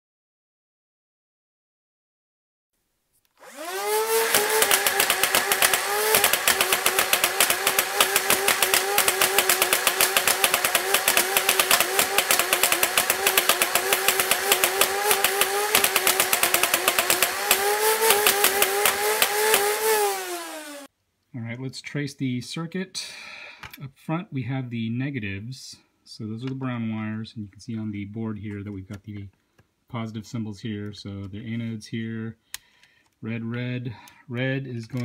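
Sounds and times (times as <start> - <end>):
flywheel motors whining: 3.4 - 20.9
toy blaster firing clatter: 3.4 - 20.9.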